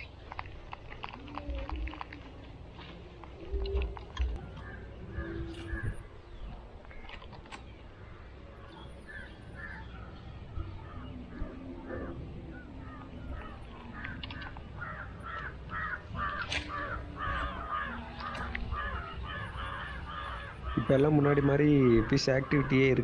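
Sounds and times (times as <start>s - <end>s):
crows cawing: 12.8s - 23.0s.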